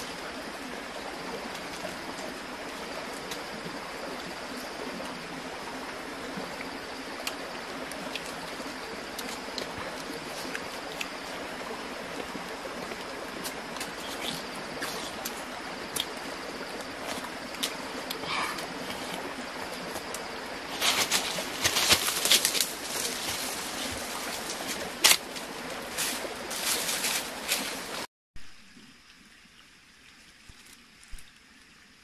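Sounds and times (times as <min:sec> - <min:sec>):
steady hiss: 0:00.0 - 0:28.6
dry leaves rustling underfoot: 0:20.7 - 0:28.1.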